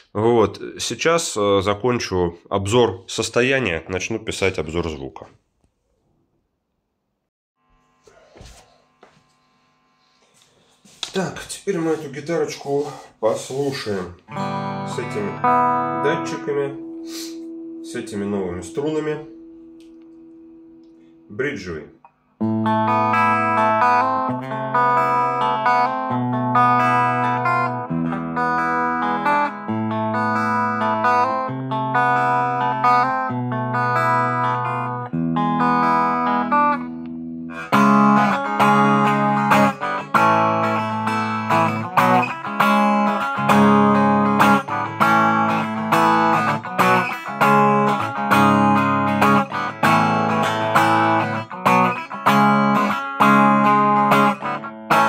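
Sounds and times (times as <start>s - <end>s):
electric guitar playing: 11.8s - 21.8s, 22.4s - 55.0s.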